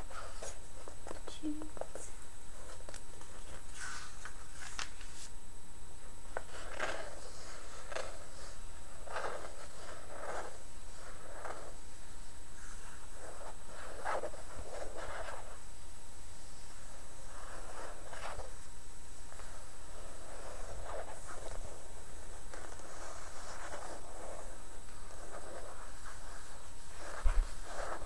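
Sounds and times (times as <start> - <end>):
fingers rubbing magazine pages: 2.8 - 5.4, 19.3 - 28.0
page turning: 2.9 - 5.3, 27.1 - 28.0.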